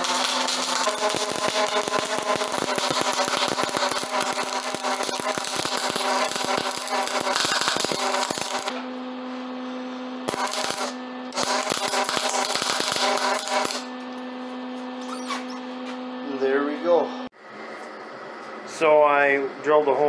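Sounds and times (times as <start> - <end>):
welder arc crackling: 0.0 - 8.8, 10.3 - 13.9.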